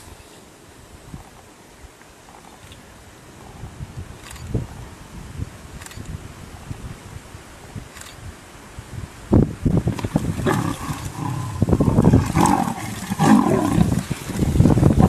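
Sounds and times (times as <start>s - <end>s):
leopard snarling: 10.3s - 15.0s
lion growling: 10.4s - 15.0s.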